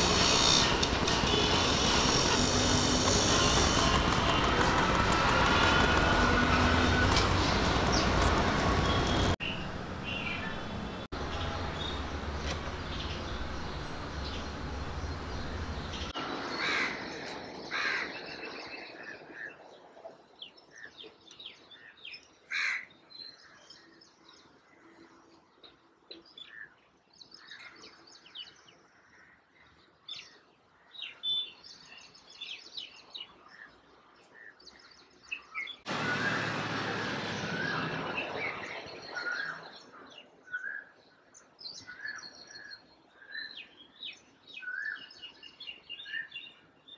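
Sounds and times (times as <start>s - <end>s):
steady rushing noise: 0.0s - 10.1s.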